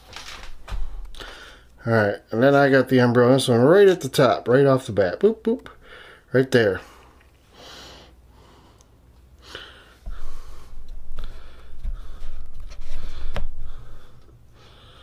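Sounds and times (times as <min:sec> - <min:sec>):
faint breathing: 0:00.8 - 0:01.8, 0:05.8 - 0:15.0.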